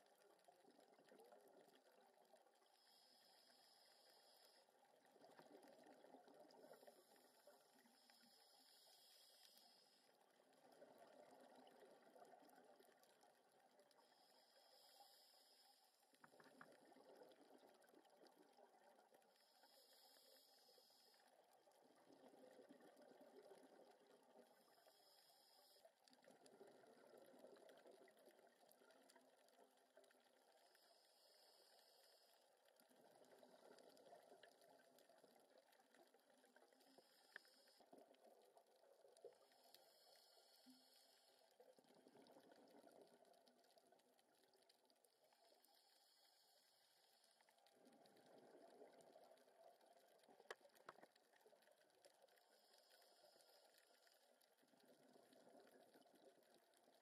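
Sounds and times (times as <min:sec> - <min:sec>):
regulator breathing hiss: 0:08.0 - 0:10.1, 0:14.0 - 0:16.0.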